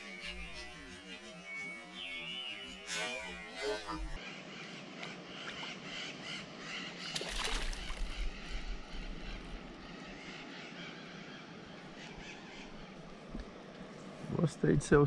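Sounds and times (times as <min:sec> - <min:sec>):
fish splashing in water: 0:07.1 - 0:08.3.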